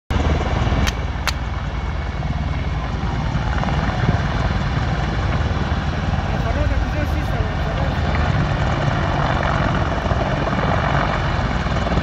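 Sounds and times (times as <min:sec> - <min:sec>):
helicopter rotor beating: 0:00.1 - 0:12.0
sharp clicks: 0:00.8 - 0:01.4.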